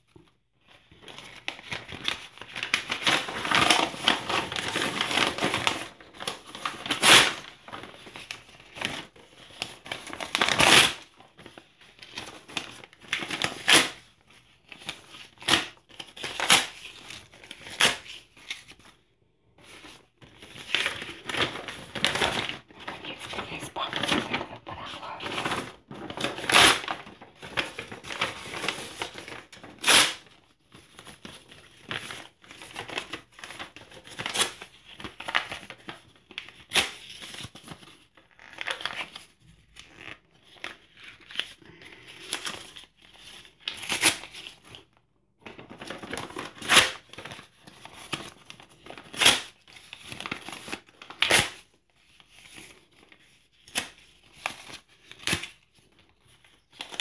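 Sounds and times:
paper rustling and crinkling: 0.0 - 57.0
paper ripping: 19.8 - 35.9.

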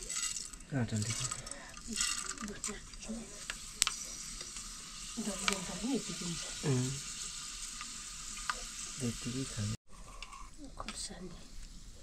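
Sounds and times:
food sizzling in hot oil: 0.0 - 12.0
utensil clicking against pan: 5.3 - 5.8.

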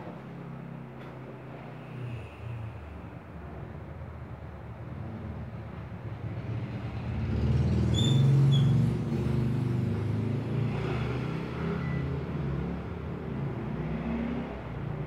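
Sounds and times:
brief high squeak: 7.9 - 8.8, 11.8 - 12.1.

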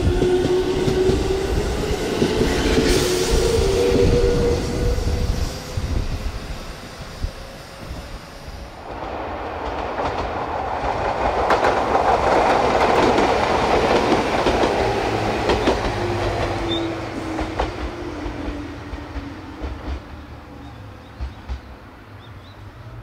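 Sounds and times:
electric train passing: 0.0 - 23.0.

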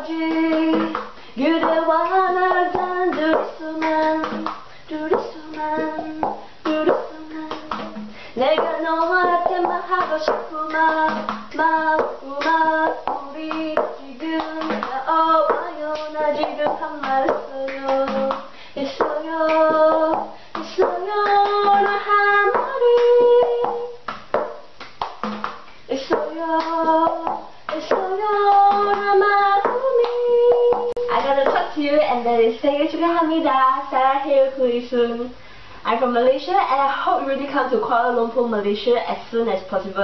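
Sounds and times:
woman singing: 0.0 - 24.1, 25.9 - 40.0
hand claps: 0.3 - 31.7
plastic cup tapping on table: 23.6 - 26.2.

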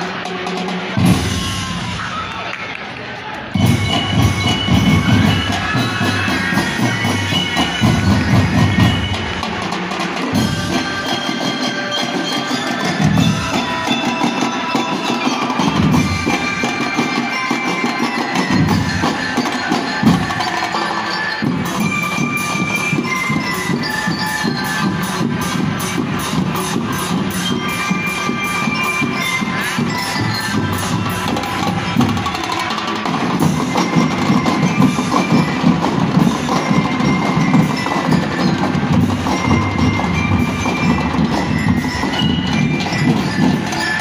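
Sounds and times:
drum and lyre band playing: 0.0 - 2.6, 3.5 - 44.0.

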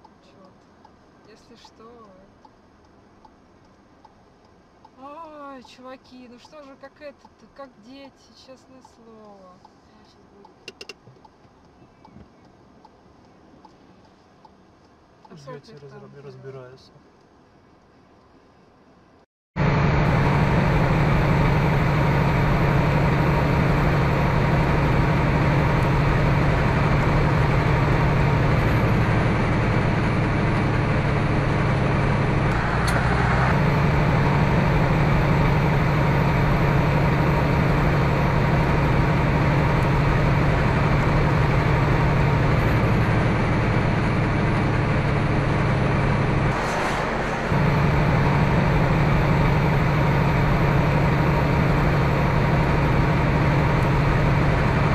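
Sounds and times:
truck engine and road drone: 0.0 - 54.9.

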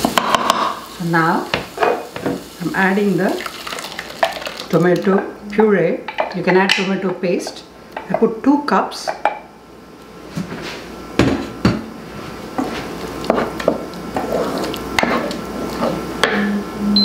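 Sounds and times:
wooden spatula scraping a pan: 12.6 - 16.0.

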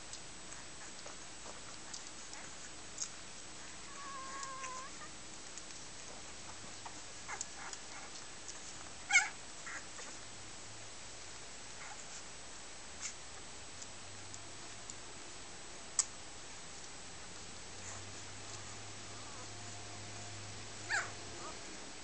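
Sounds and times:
puppies squeaking: 3.9 - 5.1, 20.9 - 21.6.

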